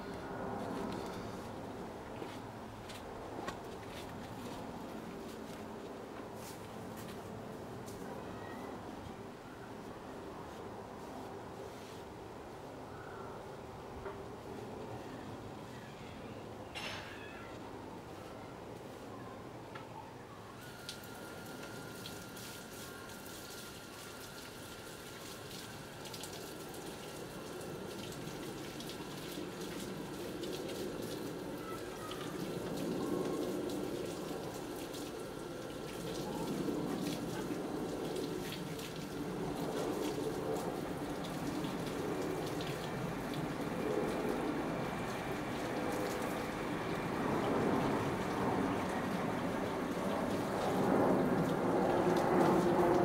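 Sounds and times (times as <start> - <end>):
rain falling: 20.6 - 53.0.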